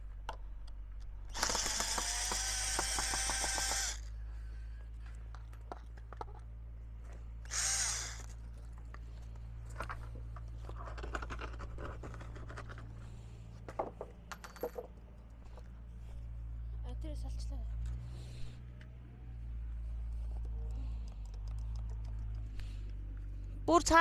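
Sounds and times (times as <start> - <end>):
power drill driving screws: 1.3 - 4.1, 7.5 - 8.4.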